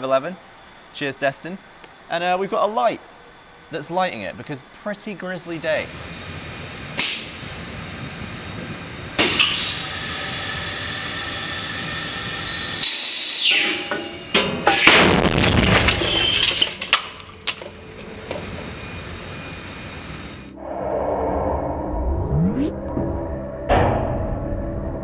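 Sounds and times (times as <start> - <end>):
high whine falling in pitch: 0.0 - 16.5, 17.8 - 25.0
loud bang: 13.8 - 16.7
debris clattering on concrete: 14.7 - 18.8.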